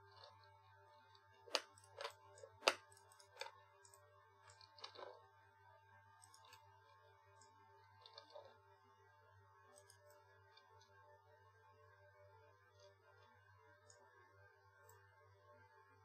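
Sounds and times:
faint steady hum: 0.0 - 16.0
mouse and keyboard clicks: 1.5 - 5.2.

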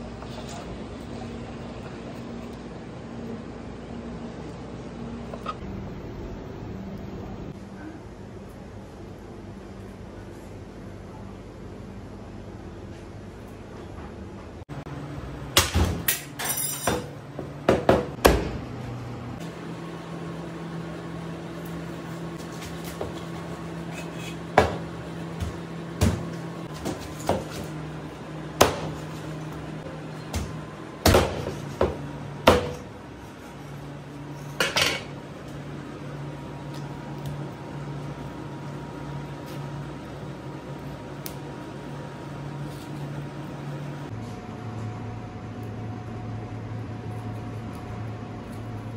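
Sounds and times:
low hum: 0.0 - 13.8.

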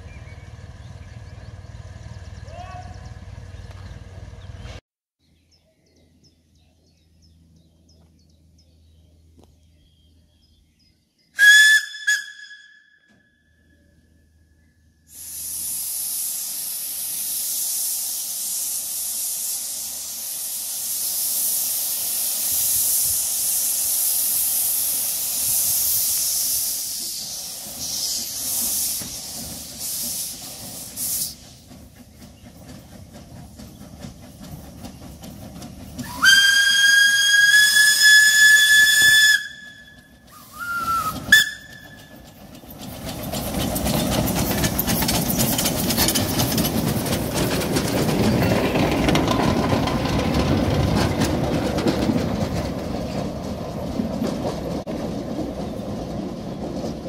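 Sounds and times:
steam locomotive whistle: 11.4 - 13.3, 36.0 - 42.3
steam hissing: 15.1 - 50.7.

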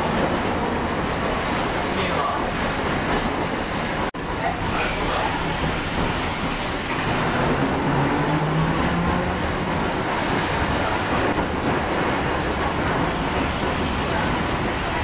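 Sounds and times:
streetcar wheels rumbling: 0.0 - 15.0
faint wheel squeal: 1.1 - 2.2, 9.2 - 11.2.

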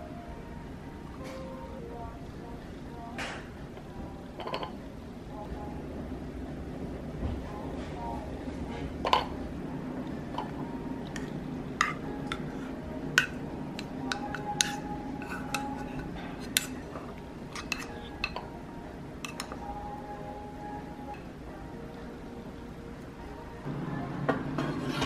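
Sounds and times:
utensils clinking against dishes: 4.4 - 4.8, 8.7 - 9.4, 10.3 - 18.6, 19.2 - 19.7, 24.3 - 25.0.

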